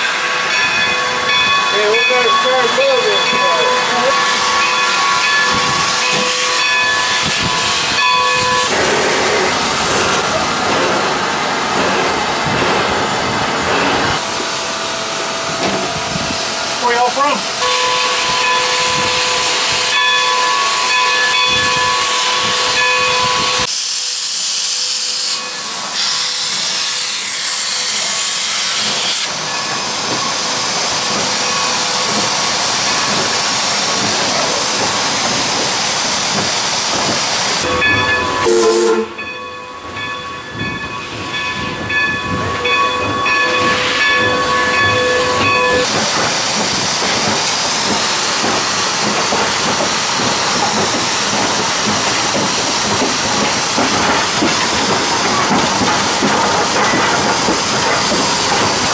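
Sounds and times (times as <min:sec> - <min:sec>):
rail noise: 0:00.0 - 0:58.9
steam hissing: 0:01.7 - 0:20.0, 0:20.7 - 0:39.3, 0:43.6 - 0:58.9
blast of venting steam: 0:23.7 - 0:29.3
steam whistle: 0:37.6 - 0:39.2.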